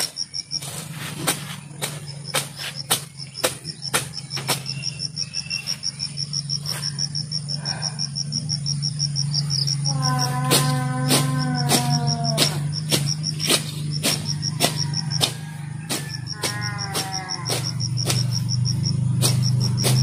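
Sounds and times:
blade hacking at weeds: 0.0 - 7.4, 9.6 - 20.0
insects chirping: 0.0 - 20.0
steady low hum: 0.0 - 20.0
long drawn-out call: 9.6 - 12.8, 16.3 - 17.9.

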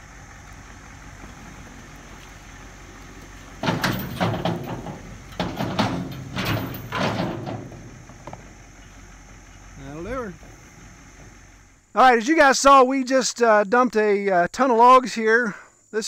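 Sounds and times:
low steady hum: 0.0 - 12.1.

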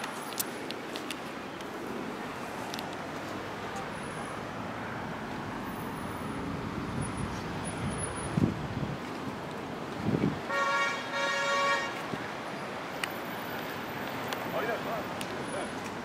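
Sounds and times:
traffic noise: 0.0 - 16.0
car horn honking: 10.5 - 12.0.

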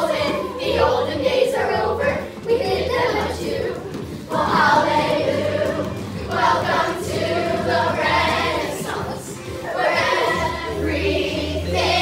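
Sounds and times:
chorus singing: 0.0 - 12.0.

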